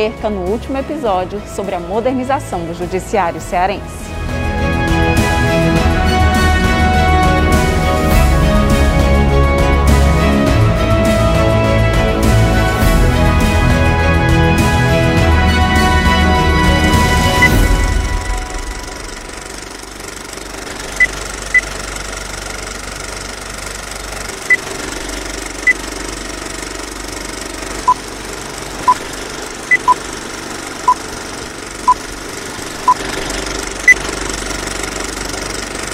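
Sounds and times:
mechanical running noise: 18.0 - 35.9
high electronic beeps: 29.7 - 30.0
low electronic beeps: 29.7 - 30.0.

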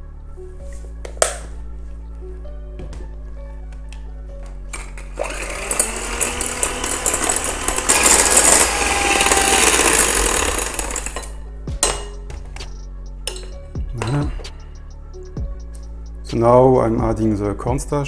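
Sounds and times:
background music: 0.0 - 18.0
electric hand mixer whisking: 5.0 - 11.4.

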